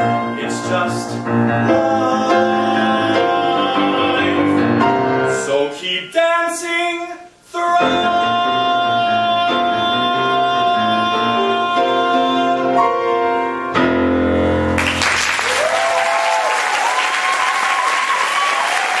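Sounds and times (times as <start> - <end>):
grand piano chords: 0.0 - 6.9, 7.6 - 15.4
audience applause: 14.8 - 19.0
audience cheering: 14.8 - 19.0.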